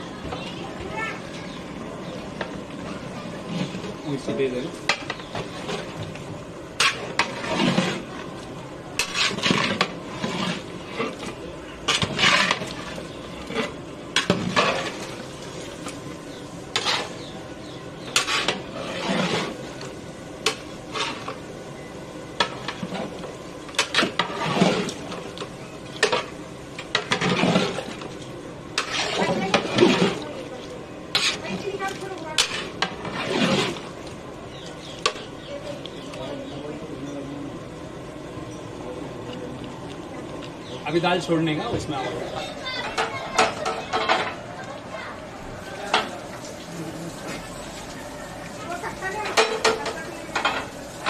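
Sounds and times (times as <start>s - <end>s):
metal ladle scraping in pot: 4.8s - 8.3s, 9.0s - 17.4s, 18.0s - 21.4s, 22.4s - 30.3s, 31.1s - 35.3s.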